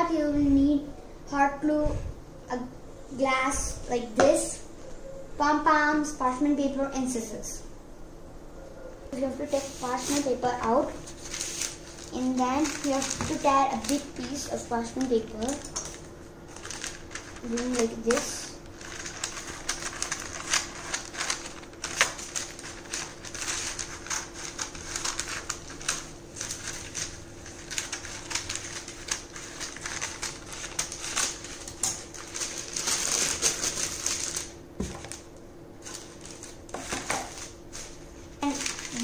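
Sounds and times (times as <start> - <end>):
paper crackling and rustling: 9.1 - 39.0.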